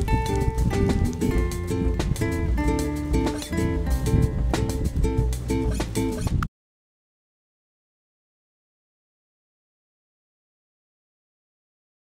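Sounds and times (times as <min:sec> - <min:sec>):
strummed acoustic guitar: 0:00.0 - 0:06.4.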